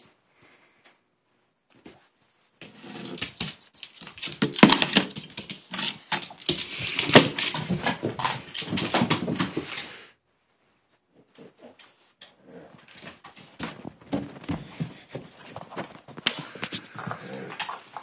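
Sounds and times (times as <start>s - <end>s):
dog claws scrabbling on tile: 2.6s - 10.0s, 12.8s - 18.0s.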